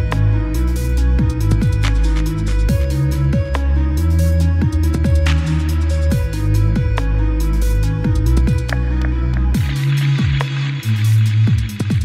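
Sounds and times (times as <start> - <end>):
deep held bass notes: 0.0 - 11.8
steady kick drum beat: 6.1 - 7.1, 8.0 - 8.8, 9.6 - 12.0.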